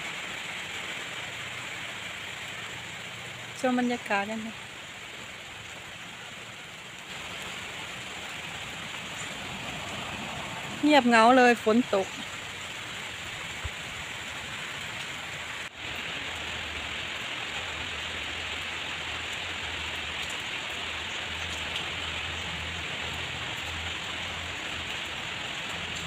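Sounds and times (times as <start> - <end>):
steady rain falling: 0.0 - 26.0.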